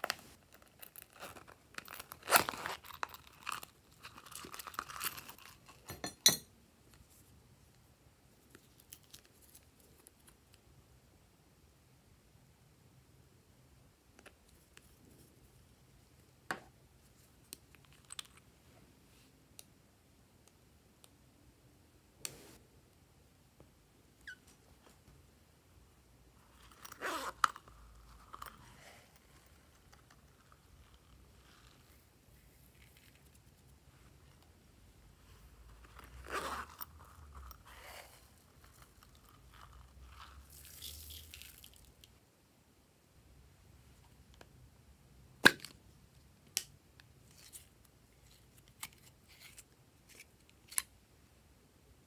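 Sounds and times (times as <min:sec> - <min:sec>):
sequins rustling crinkly: 0:00.0 - 0:05.9, 0:26.4 - 0:34.5, 0:35.2 - 0:42.2.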